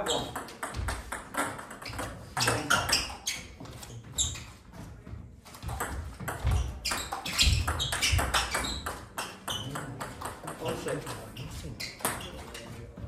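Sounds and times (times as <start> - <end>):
ping pong ball clicking and bouncing: 0.0 - 3.2, 5.7 - 11.0
shoes squeaking on floor: 0.0 - 13.0.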